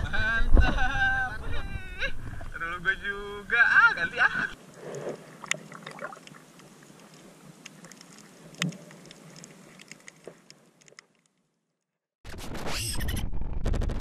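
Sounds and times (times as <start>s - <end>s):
muffled underwater hiss: 4.5s - 10.7s.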